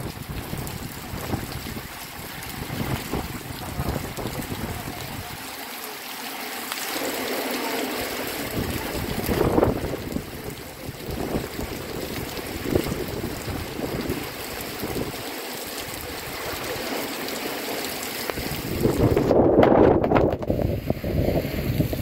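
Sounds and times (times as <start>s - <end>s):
wind buffeting microphone: 0.0s - 5.4s, 8.4s - 15.2s, 18.3s - 22.0s
heavy rain pouring: 0.0s - 22.0s.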